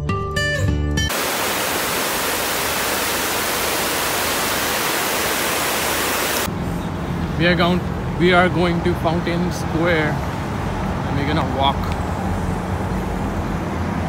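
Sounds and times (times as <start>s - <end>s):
water rushing down fountain: 1.1s - 6.5s.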